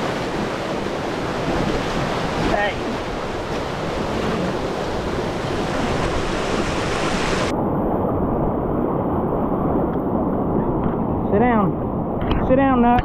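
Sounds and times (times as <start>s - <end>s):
whitewater rapids rushing: 0.0s - 7.5s
wind buffeting microphone: 0.0s - 13.0s.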